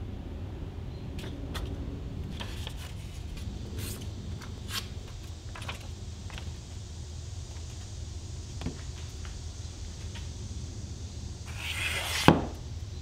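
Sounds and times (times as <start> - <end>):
steady low hum: 0.0 - 13.0
paper rustling and creasing: 2.3 - 5.9.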